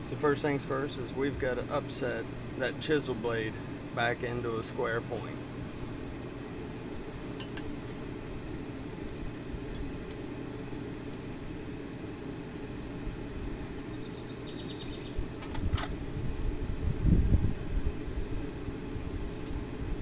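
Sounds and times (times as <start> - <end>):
low rumble of a running forge: 0.0 - 20.0.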